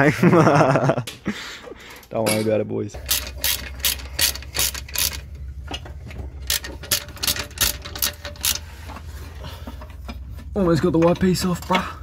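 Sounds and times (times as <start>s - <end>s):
socket ratchet clicking: 3.0s - 5.3s, 6.4s - 8.6s.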